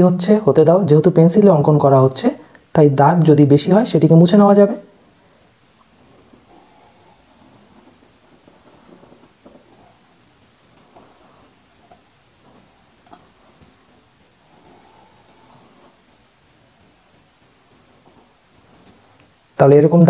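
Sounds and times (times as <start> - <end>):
pencil scratching on paper: 5.6 - 11.6, 14.4 - 16.8.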